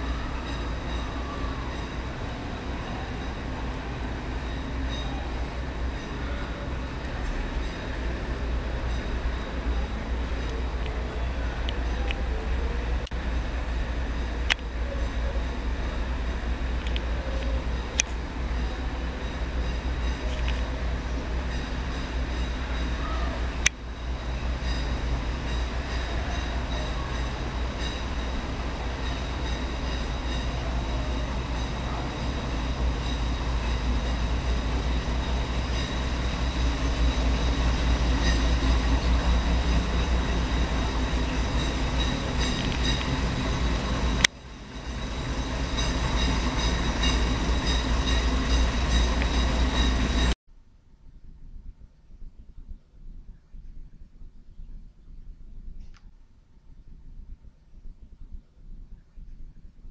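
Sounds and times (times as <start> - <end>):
diesel railcar idling: 0.0 - 50.4.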